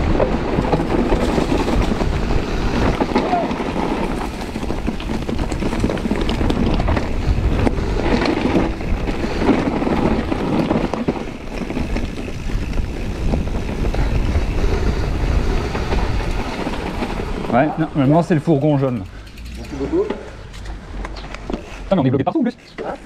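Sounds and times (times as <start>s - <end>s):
wind on microphone: 0.0s - 18.0s
bike knocks and rattles: 0.0s - 23.0s
bike tyres rumbling on dirt: 0.0s - 23.0s.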